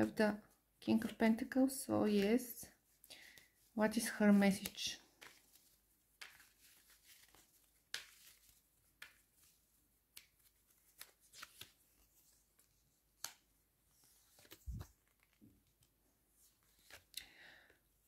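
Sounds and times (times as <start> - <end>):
cards flicking and slapping on table: 4.5 - 9.5, 10.1 - 11.8, 13.2 - 13.5.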